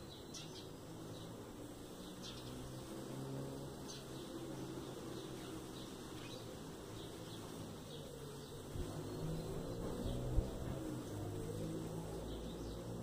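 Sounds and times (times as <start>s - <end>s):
small bird chirping: 0.0s - 3.0s.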